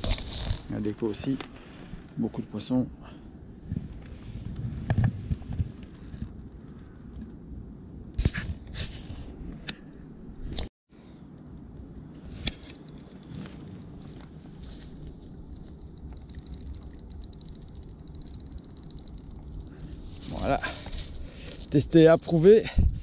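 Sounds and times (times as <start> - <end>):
steady low rumble: 9.2 - 23.0
fast even ticking: 12.8 - 20.6.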